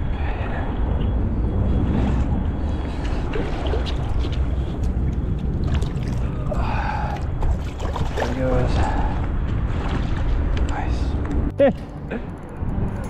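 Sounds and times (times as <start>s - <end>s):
wind: 0.0s - 13.0s
light water splashes: 3.0s - 9.0s.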